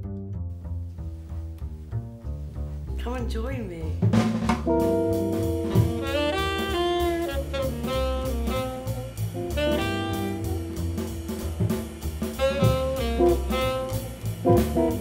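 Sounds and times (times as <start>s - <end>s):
double bass: 0.0s - 15.0s
drum kit: 2.8s - 15.0s
saxophone melody: 4.7s - 15.0s.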